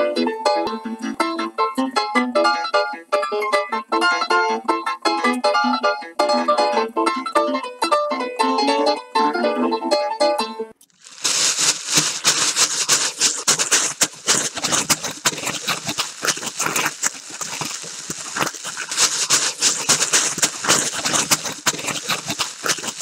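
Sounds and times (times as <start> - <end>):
plastic sheeting crinkling: 10.9 - 23.0.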